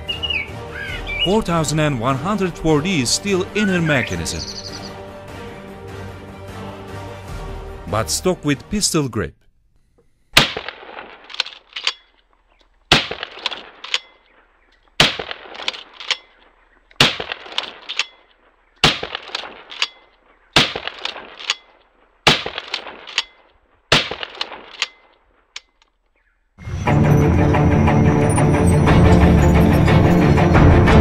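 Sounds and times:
shotgun shots: 10.4s - 12.1s, 12.9s - 25.7s
shotgun forend pumping clacks: 10.4s - 26.0s.

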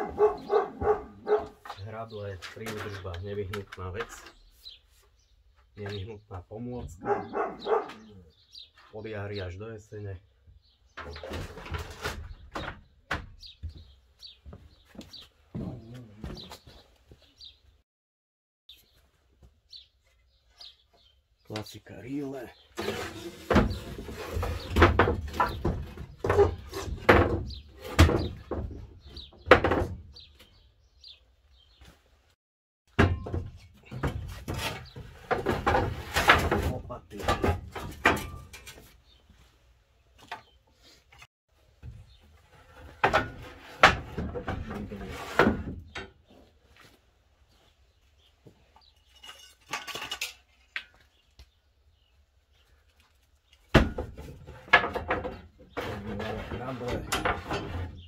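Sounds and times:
tools knocking on wooden shelving: 24.5s - 30.0s
garden tools knocking on wood: 32.9s - 38.7s.

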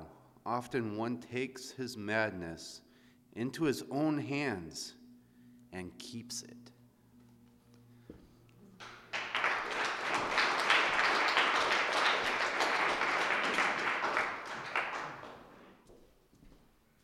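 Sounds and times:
audience applauding: 8.8s - 15.8s.

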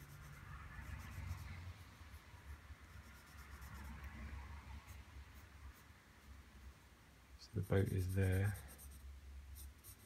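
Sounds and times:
pencil scratching on paper: 0.0s - 4.2s, 7.5s - 10.0s.

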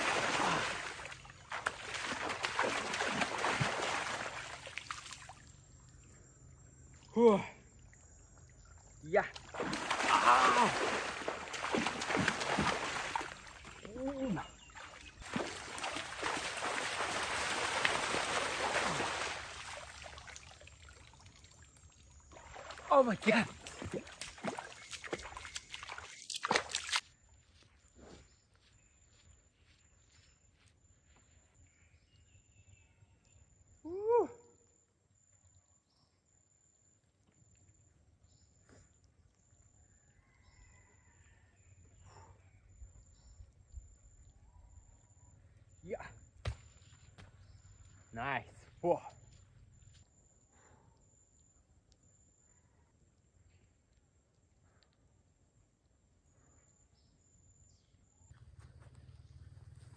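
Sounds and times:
seawater splashing by hand: 0.0s - 5.4s, 9.3s - 20.6s, 22.3s - 27.0s.

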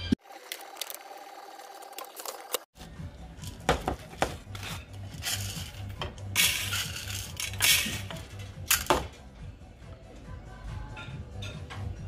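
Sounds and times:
background music with low beat: 2.8s - 12.0s.

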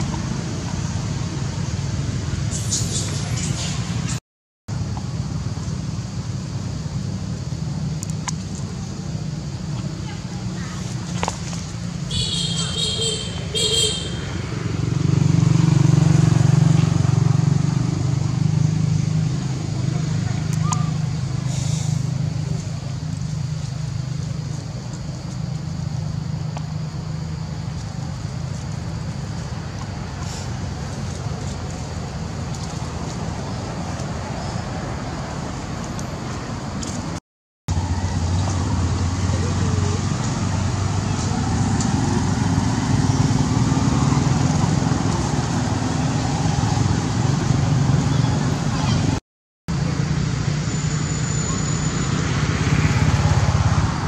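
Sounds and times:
low engine rumble: 15.8s - 50.6s.

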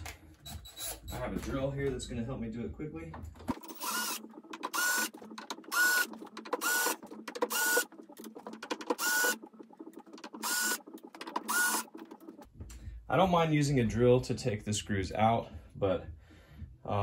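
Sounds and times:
cordless drill motor whine: 3.6s - 4.2s, 9.0s - 9.4s, 11.5s - 11.8s.

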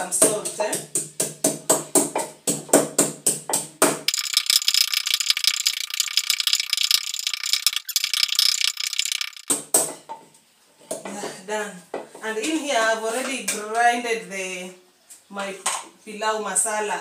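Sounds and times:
pestle grinding: 4.1s - 9.4s.

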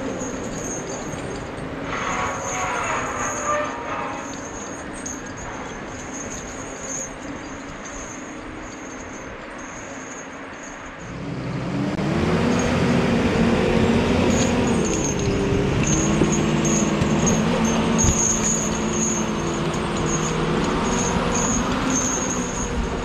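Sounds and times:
diesel engine driving past: 11.0s - 23.0s.

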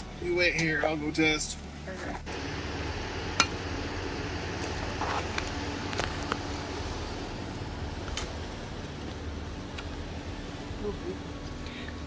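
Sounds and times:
minivan engine idling: 0.0s - 12.0s
footsteps on gravel: 4.6s - 6.6s.

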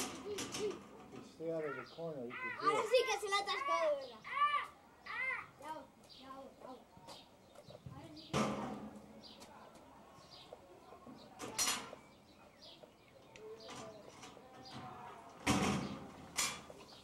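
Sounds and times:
metal gate rattling and banging: 0.0s - 1.8s, 8.3s - 9.0s, 11.4s - 12.0s, 13.6s - 16.8s
birds chirping faintly: 0.0s - 17.0s.

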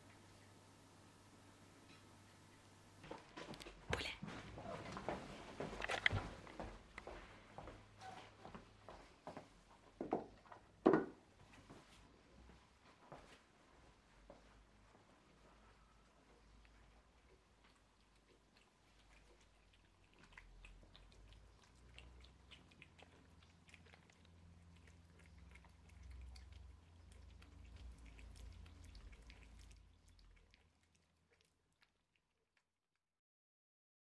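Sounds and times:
cats chewing: 1.9s - 10.7s, 14.5s - 32.8s.

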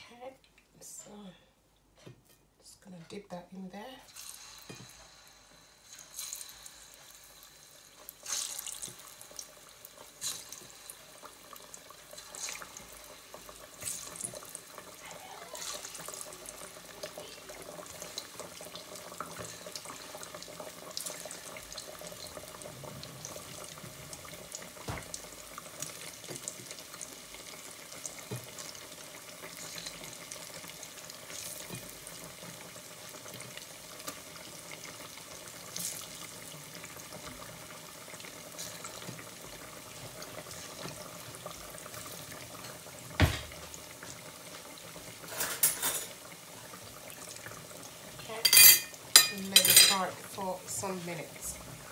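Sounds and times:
plantain frying in hot oil: 3.2s - 51.9s
sizzling bursts as pieces drop in: 4.0s - 23.5s.

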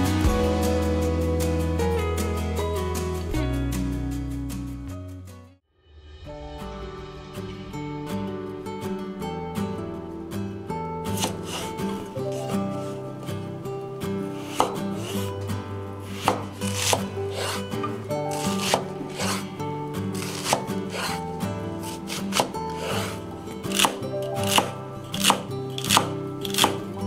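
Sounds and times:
soft background music: 6.1s - 27.0s
knife chopping on wooden board: 11.2s - 12.9s, 14.4s - 15.3s, 16.1s - 19.5s, 20.2s - 26.9s.

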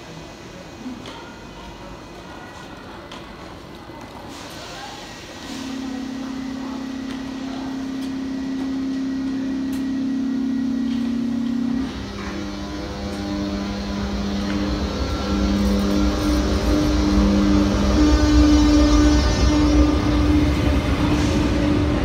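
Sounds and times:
locomotive humming: 0.0s - 22.0s
deep engine rumble: 6.2s - 22.0s.

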